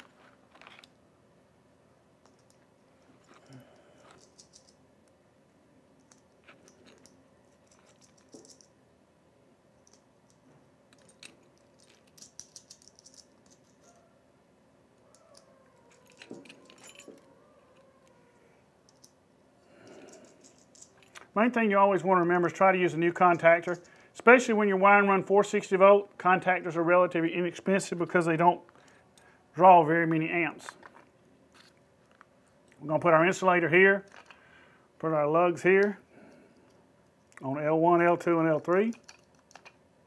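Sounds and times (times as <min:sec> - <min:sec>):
faint metallic clicks and clinks: 0:02.2 - 0:04.8, 0:06.0 - 0:08.8, 0:09.7 - 0:14.0, 0:15.1 - 0:18.2, 0:18.8 - 0:21.6, 0:23.2 - 0:24.2, 0:34.0 - 0:34.4, 0:38.6 - 0:39.8.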